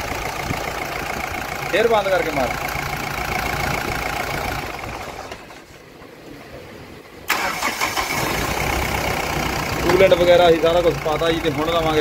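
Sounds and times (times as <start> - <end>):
diesel engine running: 0.0 - 5.8, 7.3 - 12.0
engine starter cranking: 7.3 - 9.2
engine winding down: 7.3 - 12.0.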